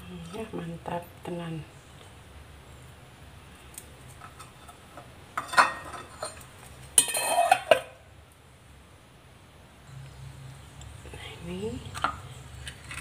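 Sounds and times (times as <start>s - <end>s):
sticks clattering on ceramic plate: 4.1s - 8.0s.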